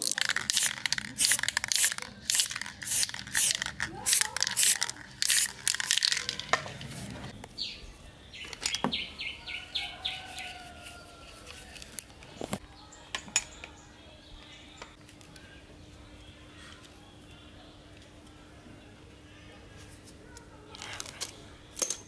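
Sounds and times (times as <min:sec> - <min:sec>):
spray paint can hissing: 0:00.0 - 0:06.5.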